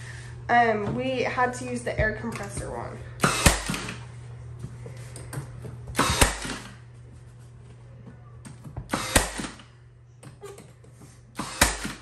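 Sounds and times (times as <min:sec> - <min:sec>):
nail gun firing: 0:03.2 - 0:04.0, 0:06.0 - 0:06.8, 0:08.9 - 0:09.7, 0:11.4 - 0:12.0.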